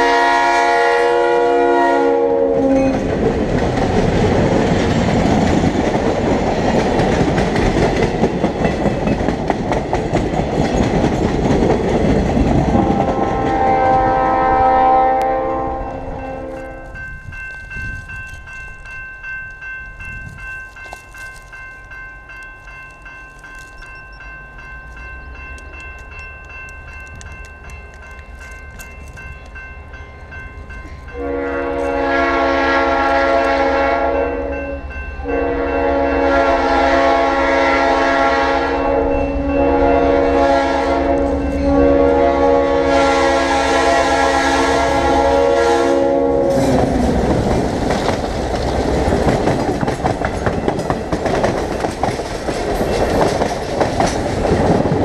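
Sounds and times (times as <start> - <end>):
train horn blasts: 0.0 - 3.0, 12.7 - 17.1, 31.1 - 47.2
crossing bell ringing: 0.0 - 3.3, 12.8 - 47.6, 48.6 - 51.8
train wheels rumbling: 0.0 - 55.0
locomotive engine rumble: 46.2 - 55.0.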